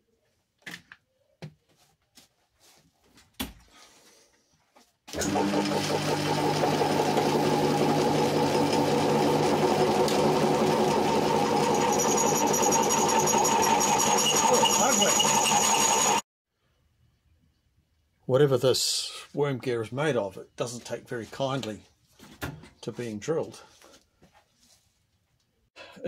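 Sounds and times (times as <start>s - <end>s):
metal lathe running: 5.2s - 16.2s.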